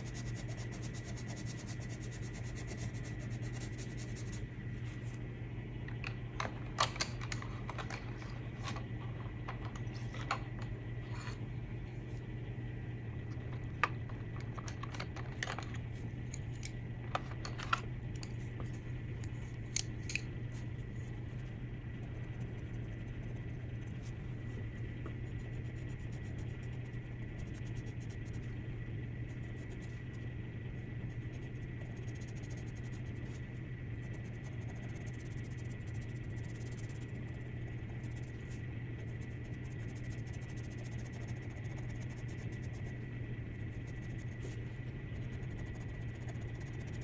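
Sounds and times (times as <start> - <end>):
pencil scratching on paper: 0.0 - 4.5, 20.5 - 28.6, 31.1 - 47.0
steady low hum: 0.0 - 47.0
wooden pencils clicking together: 5.9 - 10.7, 13.3 - 18.4, 19.7 - 20.3.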